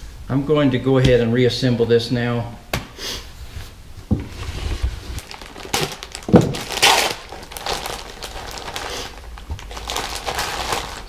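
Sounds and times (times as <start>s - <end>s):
plastic packaging crinkling: 5.0s - 11.0s.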